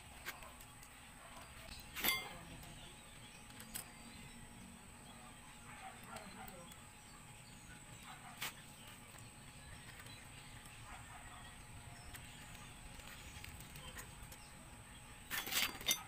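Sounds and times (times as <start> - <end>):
metal tools clinking: 1.4 - 4.3, 15.3 - 16.0.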